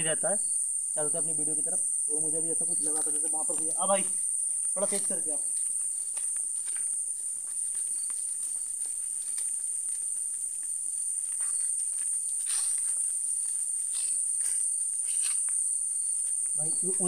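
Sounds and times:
crickets trilling: 0.0s - 17.0s
footsteps on ground: 2.7s - 17.0s.

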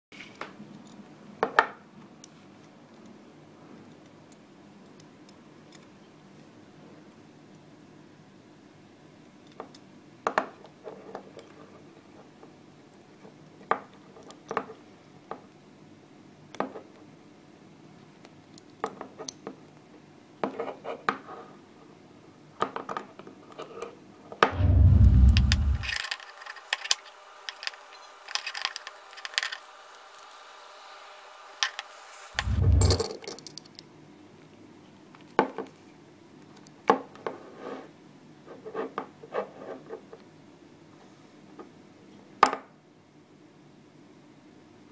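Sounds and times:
low handling rumble: 24.5s - 26.0s, 32.4s - 33.1s.

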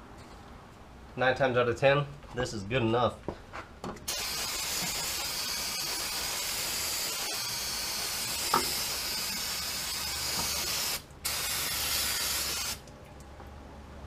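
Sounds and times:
aerosol spray hissing: 4.1s - 12.8s.

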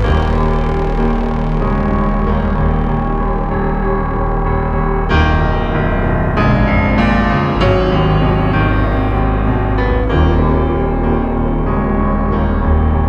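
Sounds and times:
steady low bass: 0.0s - 13.0s
sustained keyboard chords: 0.0s - 13.0s.

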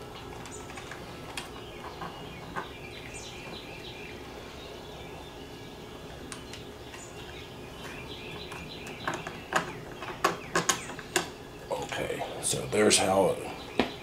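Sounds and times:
handling clicks and taps: 7.8s - 11.3s.

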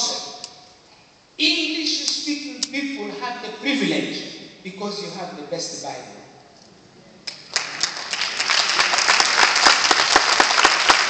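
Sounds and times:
congregation applauding: 7.3s - 11.0s.

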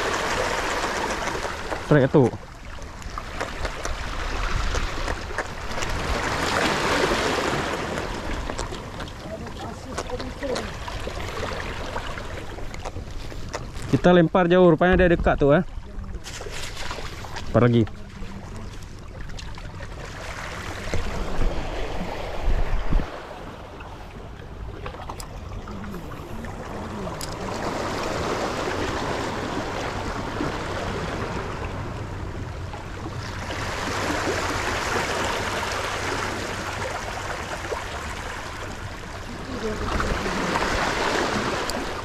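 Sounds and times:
surf washing on shore: 0.0s - 15.2s, 15.9s - 42.0s
sea water splashing: 0.0s - 42.0s.

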